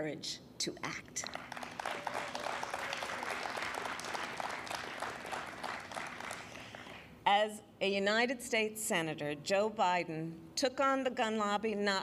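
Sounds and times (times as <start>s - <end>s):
audience applauding: 1.3s - 7.1s.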